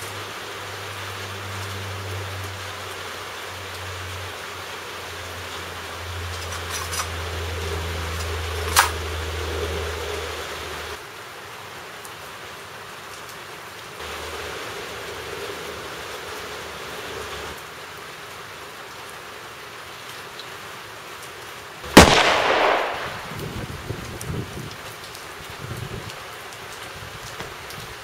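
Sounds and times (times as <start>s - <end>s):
rain falling: 0.0s - 28.0s
background hiss: 21.8s - 24.4s.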